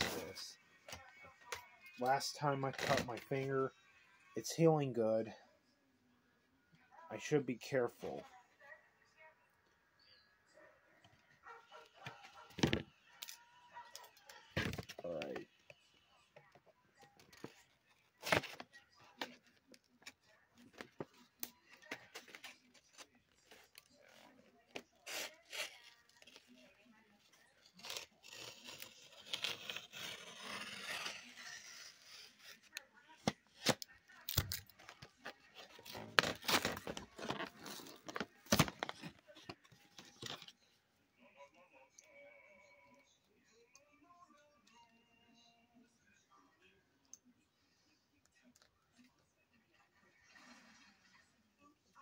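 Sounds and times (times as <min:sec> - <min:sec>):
plastic clicks and crinkles: 0:32.7 - 0:40.6.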